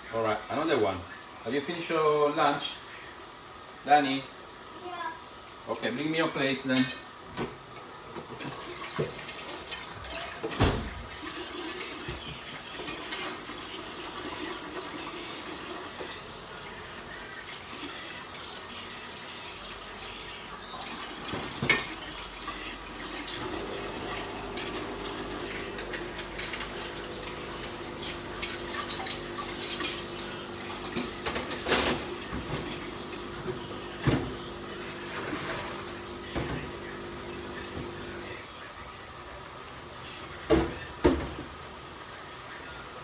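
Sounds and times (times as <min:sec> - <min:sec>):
dishes and cutlery clinking: 0:21.3 - 0:22.3, 0:23.2 - 0:32.8.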